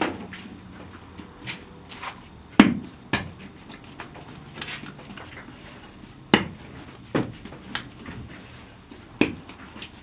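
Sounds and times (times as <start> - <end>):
dough slapped on stone: 2.6 - 3.4, 6.3 - 8.2, 9.2 - 9.9.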